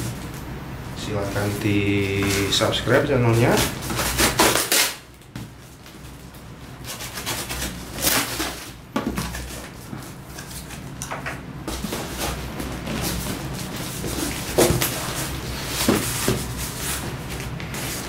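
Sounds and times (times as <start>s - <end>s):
tape and cardboard rustling: 0.0s - 18.0s
knife cutting packing tape: 3.5s - 5.2s, 6.8s - 11.0s.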